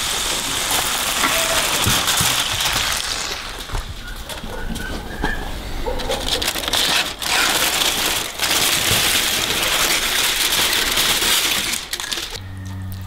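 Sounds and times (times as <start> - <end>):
aluminium foil crinkling: 0.0 - 4.9, 5.7 - 12.7
low steady hum: 12.0 - 13.0.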